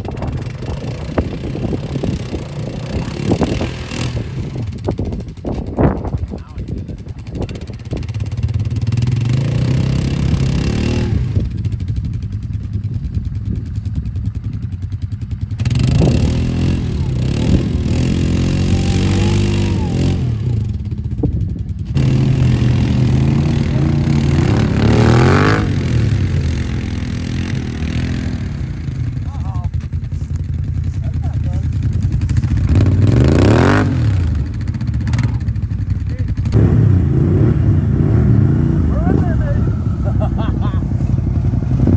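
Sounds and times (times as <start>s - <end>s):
atv engine revving: 0.0s - 41.9s.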